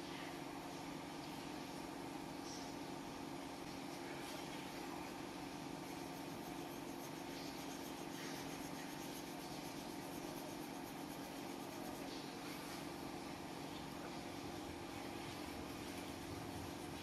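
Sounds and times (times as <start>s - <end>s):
low electrical hum: 0.0s - 17.0s
pencil scratching on paper: 5.8s - 12.2s, 15.6s - 17.0s.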